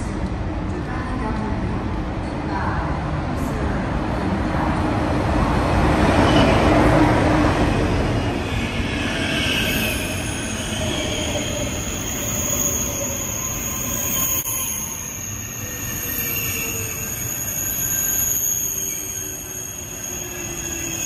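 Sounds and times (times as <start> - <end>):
high-speed train passing: 0.0 - 21.0
high brake squealing: 8.0 - 21.0.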